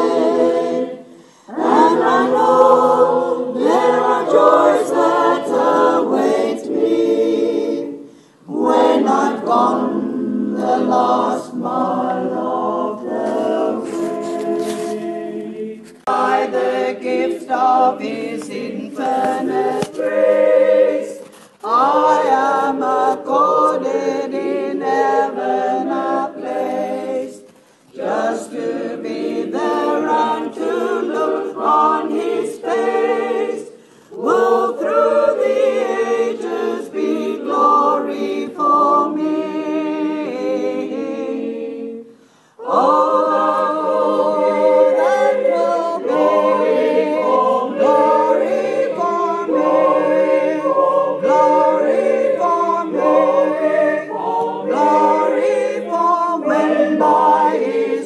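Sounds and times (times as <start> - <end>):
choir singing unaccompanied: 0.0 - 58.0.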